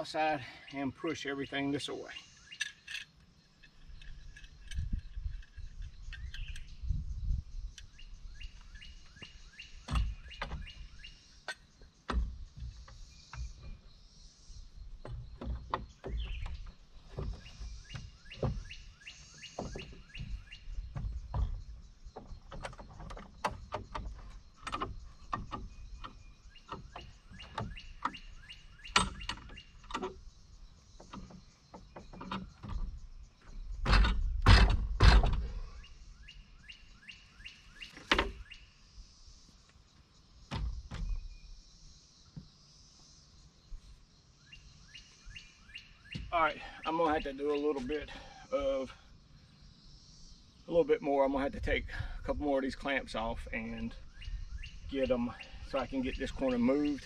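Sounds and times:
birds chirping: 0.0s - 57.0s
knocks and thumps on wood: 15.0s - 18.8s, 19.5s - 28.2s.

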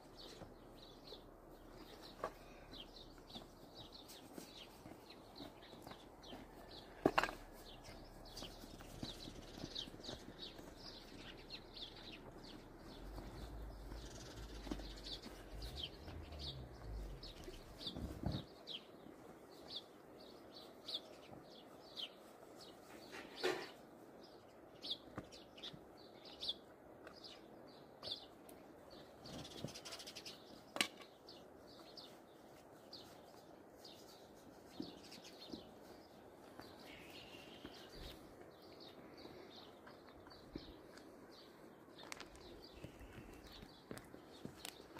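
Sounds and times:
small birds chirping: 0.0s - 44.9s
low rumble: 12.8s - 18.2s.

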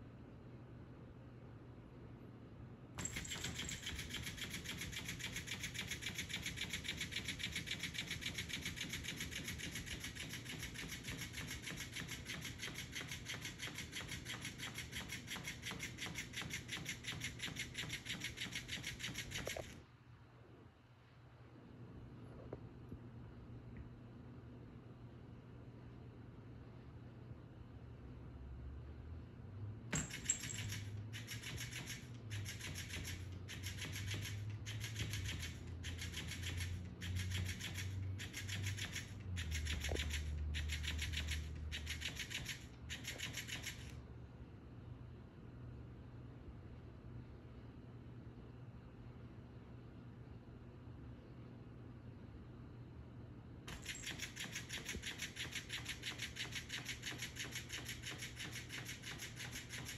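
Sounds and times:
toy motor buzzing: 3.0s - 19.8s, 30.0s - 44.0s, 53.7s - 59.9s.

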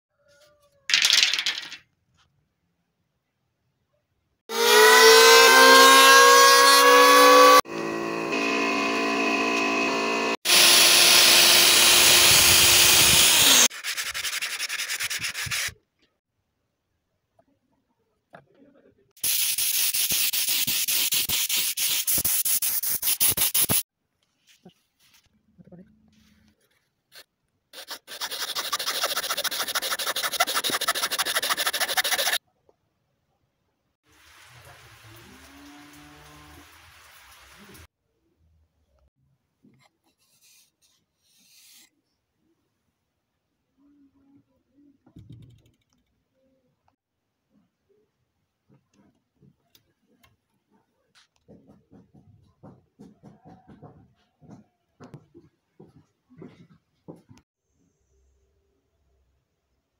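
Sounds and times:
power tool cutting wood: 4.5s - 13.7s
sandpaper rubbing wood: 12.0s - 15.8s, 19.2s - 23.8s, 27.8s - 32.4s.

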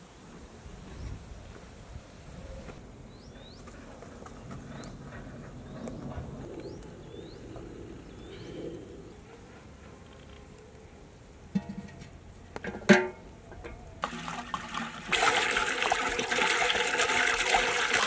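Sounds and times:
bird chirping: 2.4s - 3.8s, 4.4s - 9.2s.

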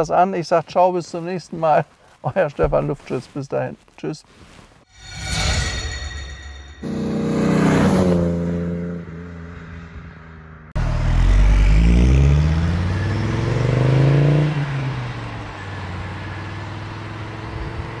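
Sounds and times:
car engine accelerating hard: 6.8s - 18.0s.

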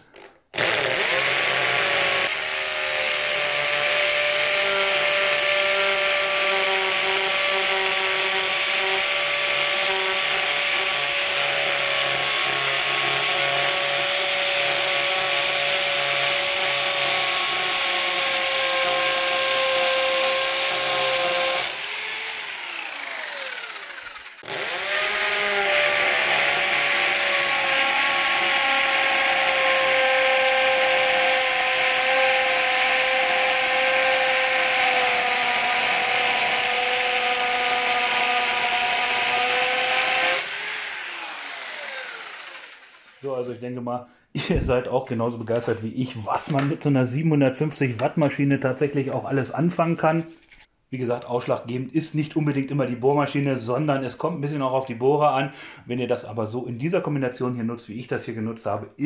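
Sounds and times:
hammer drill drilling into concrete: 0.2s - 43.3s
drill motor winding down whine: 0.6s - 43.3s.

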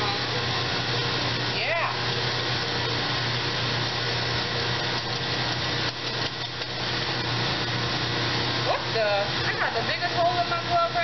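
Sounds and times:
machine hum: 0.0s - 11.0s
whisk scraping metal pitcher: 3.6s - 7.4s.

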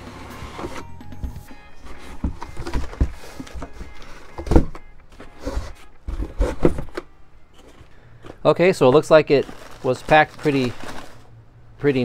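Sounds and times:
cardboard lid scraping: 1.8s - 7.0s.

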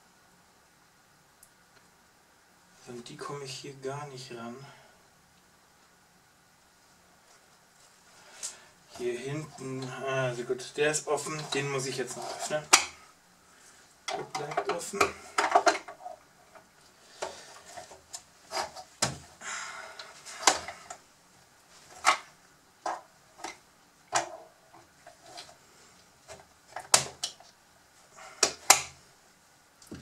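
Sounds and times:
plastic scrape: 11.2s - 12.8s, 17.1s - 18.9s.

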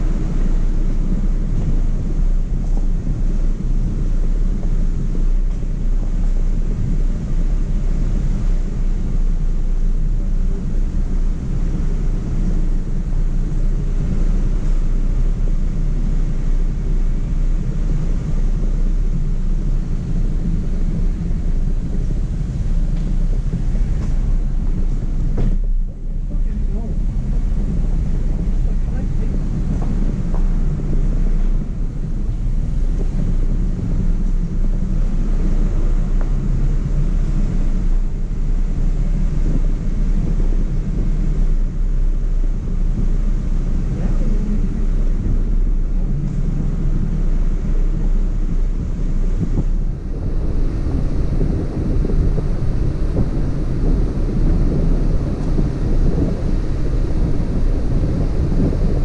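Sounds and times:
engine running: 0.0s - 59.0s
wind buffeting microphone: 0.0s - 59.0s.

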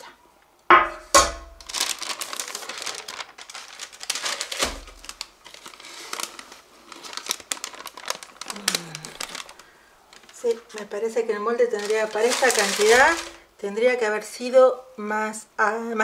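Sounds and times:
crinkling and rustling: 1.4s - 13.5s.

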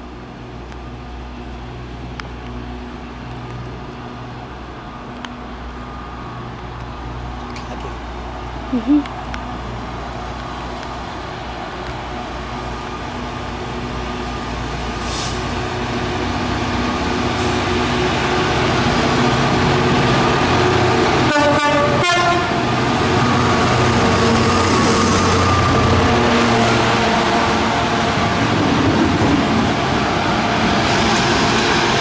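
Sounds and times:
diesel locomotive engines droning: 0.0s - 32.0s
train horn: 21.2s - 22.8s.

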